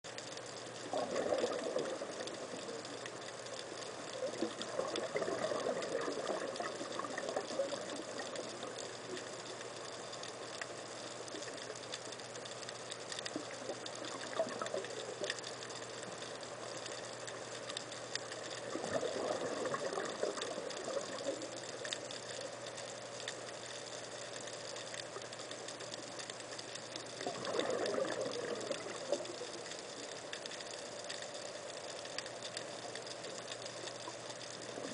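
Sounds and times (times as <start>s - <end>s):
faint ticking: 0.1s - 34.9s
steady underwater hiss: 0.1s - 34.9s
diver's exhaled bubbles rushing: 0.8s - 2.7s, 4.2s - 8.3s, 18.7s - 21.5s, 27.2s - 29.3s.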